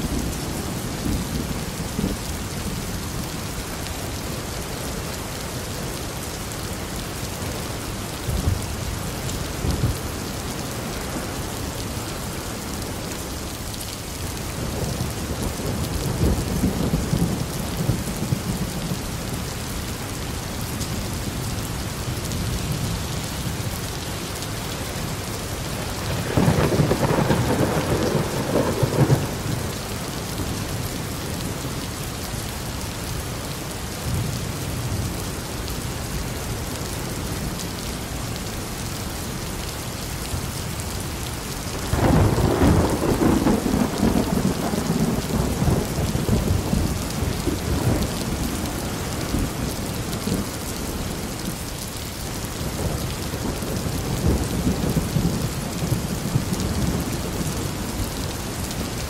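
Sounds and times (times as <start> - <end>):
steady rain: 0.0 - 59.0
rolling thunder: 26.0 - 29.9, 41.9 - 50.4.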